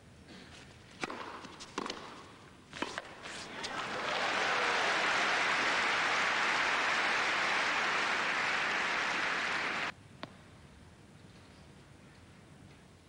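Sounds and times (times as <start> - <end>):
crowd applauding: 3.5 - 9.9.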